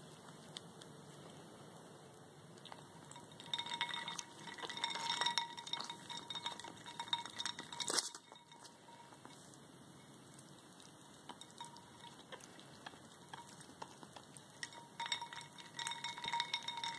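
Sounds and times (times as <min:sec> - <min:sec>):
bowl ringing: 0:03.0 - 0:09.3, 0:11.3 - 0:12.5, 0:14.6 - 0:16.9
ice cubes clinking in ceramic bowl: 0:03.1 - 0:09.0, 0:11.3 - 0:12.3, 0:14.5 - 0:16.9.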